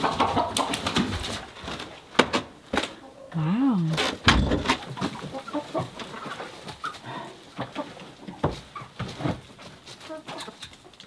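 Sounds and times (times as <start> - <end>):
chickens clucking: 0.0 - 11.0
loud thump: 4.2 - 4.8
sharp knocks: 4.2 - 4.8.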